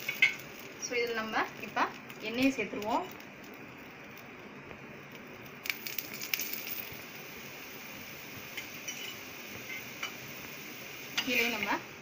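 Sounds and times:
oil sizzling on a hot griddle: 0:00.0 - 0:12.0.

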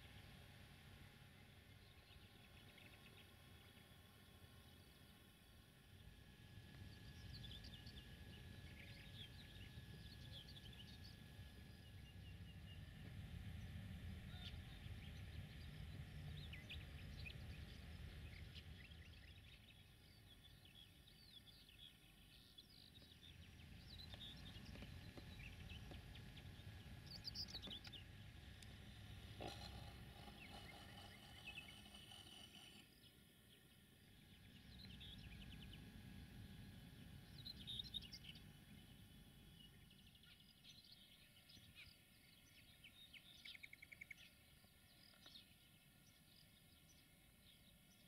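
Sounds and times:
low steady rumble: 0:00.0 - 0:48.0
birds chirping and trilling: 0:14.3 - 0:36.0, 0:37.2 - 0:48.0.

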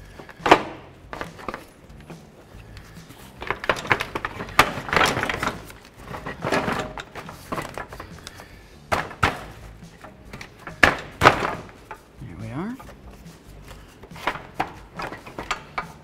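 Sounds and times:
hard plastic knocking and scraping: 0:03.1 - 0:12.1, 0:12.8 - 0:16.0.

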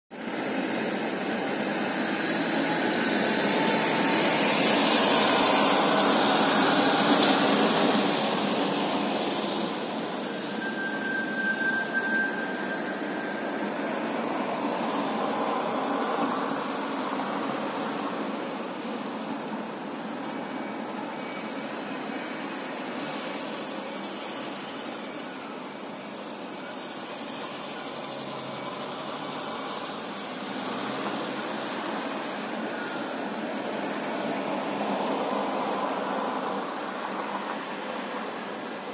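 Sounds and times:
cars passing on road: 0:00.1 - 0:38.9
small bird singing: 0:18.4 - 0:20.2.

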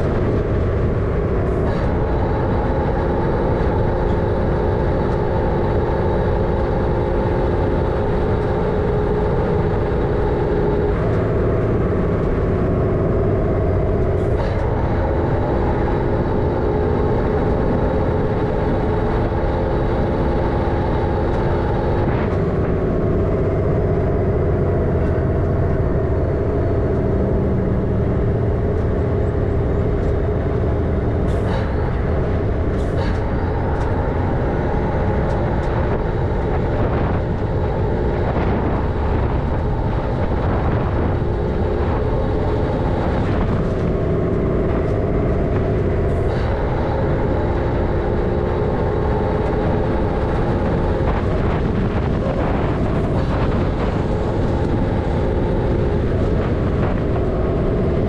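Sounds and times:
diesel truck engine drone: 0:00.0 - 0:58.0.

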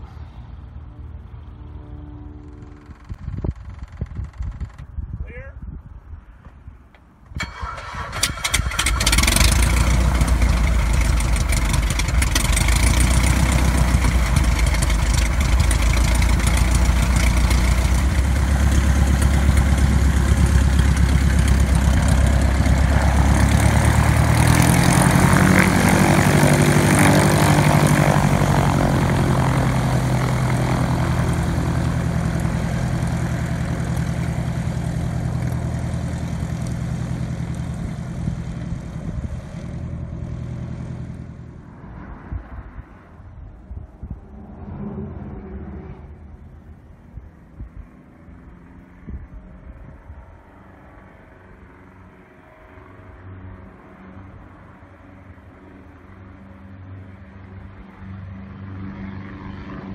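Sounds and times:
propeller aircraft engine starting: 0:01.3 - 0:04.9, 0:07.2 - 0:41.8
propeller aircraft engine idling: 0:07.4 - 0:41.6.

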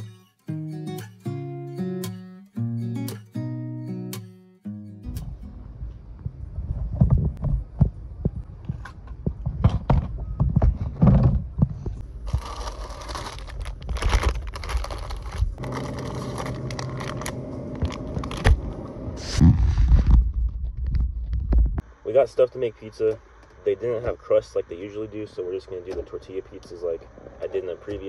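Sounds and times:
phone handling thumps and rustles: 0:08.7 - 0:12.0.

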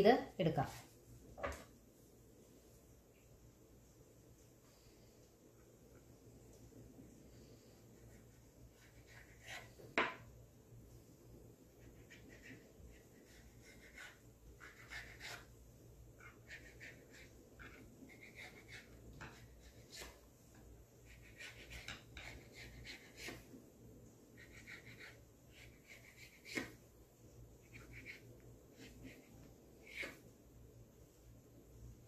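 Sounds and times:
knife tapping on wooden board: 0:10.0 - 0:10.2
knife scraping through dough: 0:27.6 - 0:30.2.

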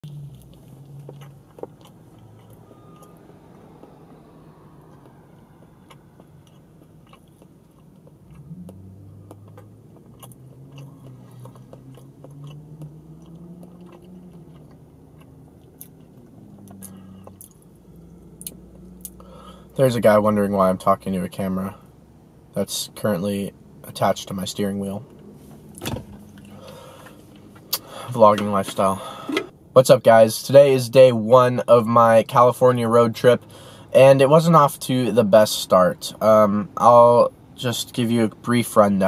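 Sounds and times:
low hum: 0:00.0 - 0:24.4
person chewing a sandwich: 0:00.1 - 0:03.2, 0:04.9 - 0:17.7.

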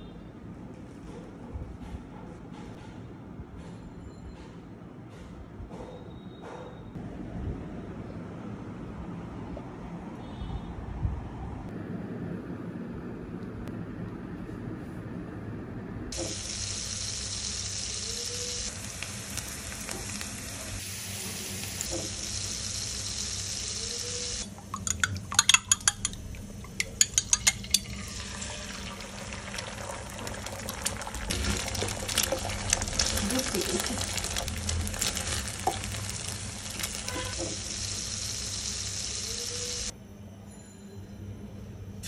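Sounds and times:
eggs frying: 0:16.1 - 0:39.9
butter sizzling in a pan: 0:16.2 - 0:24.4, 0:28.0 - 0:39.9.

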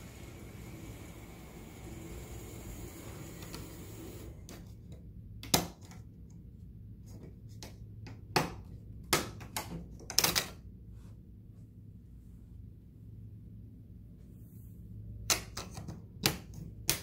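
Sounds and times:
steady hiss: 0:00.0 - 0:04.5.

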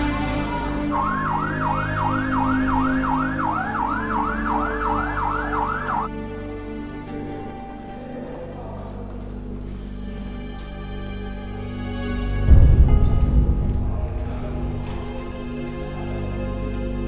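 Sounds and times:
background music sustained tones: 0:00.0 - 0:17.0
police siren yelp: 0:00.5 - 0:06.1.

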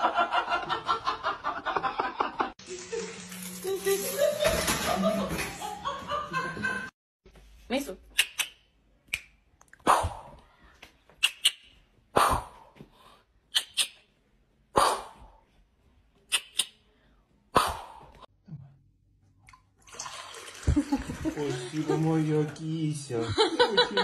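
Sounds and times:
fingers snapping: 0:11.2 - 0:11.6, 0:16.3 - 0:16.8.

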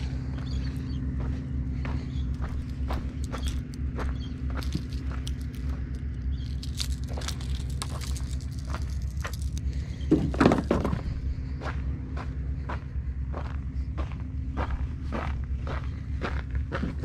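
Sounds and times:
footsteps on rocks: 0:00.0 - 0:11.3
low rumble: 0:00.0 - 0:17.0.

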